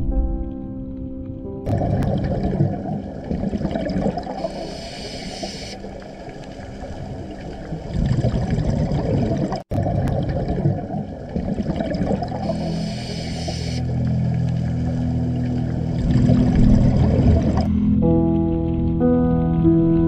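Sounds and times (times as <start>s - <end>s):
muffled underwater rushing and gurgling: 1.7s - 17.7s.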